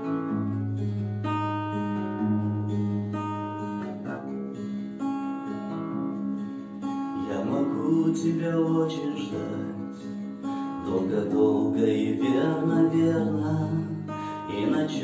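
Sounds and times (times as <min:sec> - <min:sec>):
acoustic guitar playing: 0:00.0 - 0:15.0.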